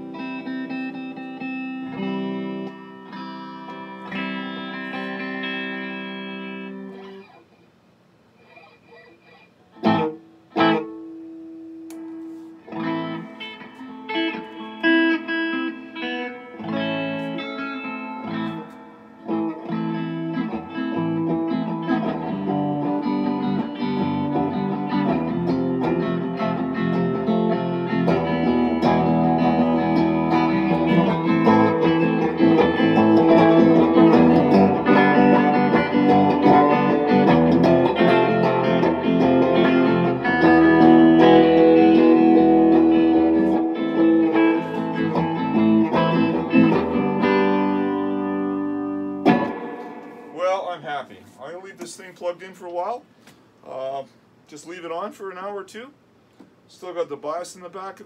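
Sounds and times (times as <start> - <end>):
electric guitar through amp: 0.0 - 7.6, 8.4 - 51.9.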